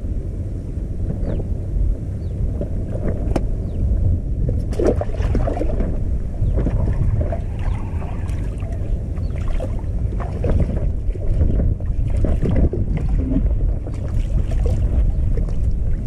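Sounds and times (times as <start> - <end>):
wind rumbling on microphone: 0.0 - 16.0
water lapping and sloshing: 4.4 - 16.0.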